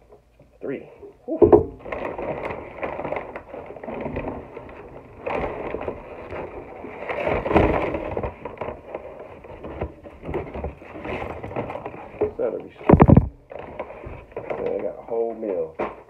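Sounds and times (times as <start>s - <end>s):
knock: 1.4s - 1.8s
paper bag rustling and crinkling: 1.5s - 16.0s.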